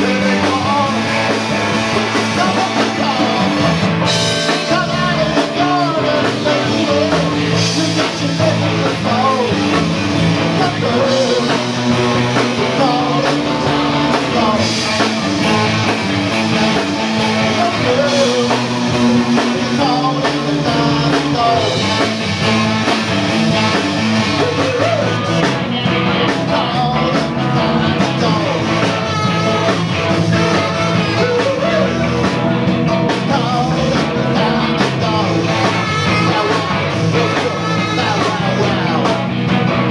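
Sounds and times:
man singing into microphone: 0.0s - 1.4s, 2.2s - 3.7s, 4.5s - 15.6s, 17.4s - 22.1s, 24.3s - 25.4s, 26.2s - 29.8s, 30.5s - 32.4s, 33.0s - 39.6s
live rock band playing: 0.0s - 39.9s.

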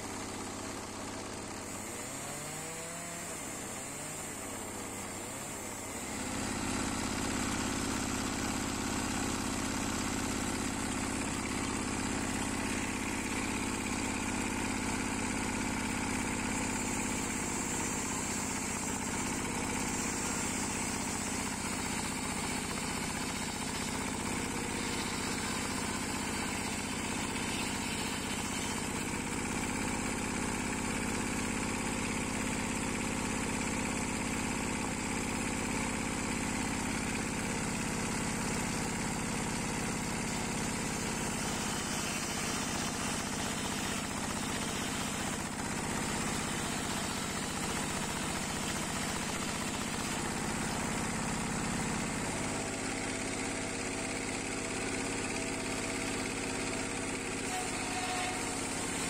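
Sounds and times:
single-cylinder tractor engine: 0.0s - 59.0s
circular saw blade spinning: 1.6s - 30.7s, 37.7s - 53.2s.

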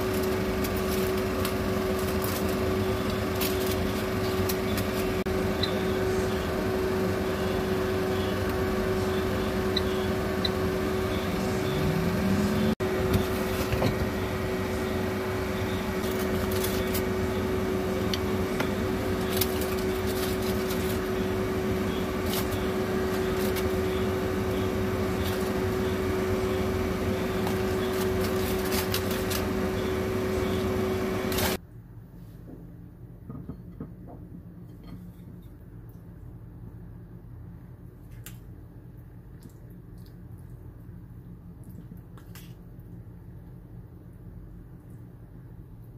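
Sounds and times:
constant appliance tone: 0.0s - 45.9s
electric fan hum: 0.0s - 45.9s
metal tongs scraping foil: 16.0s - 17.1s, 19.0s - 21.2s, 27.3s - 29.5s.

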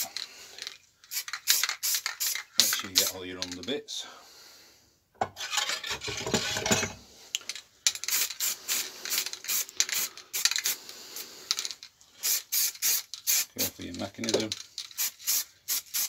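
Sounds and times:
spray paint can rattling: 0.0s - 3.7s, 7.5s - 10.8s, 11.4s - 16.0s
metal object rubbing and clattering: 5.2s - 7.0s.

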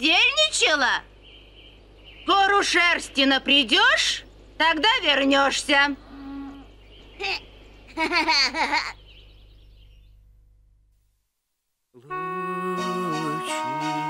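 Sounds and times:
cartoon voice laughing: 7.2s - 9.0s
music with held chords: 12.0s - 14.0s.

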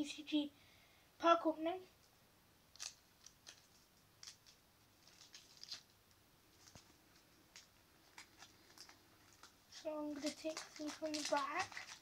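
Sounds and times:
foil pack crinkling: 2.7s - 5.9s, 6.6s - 12.0s.

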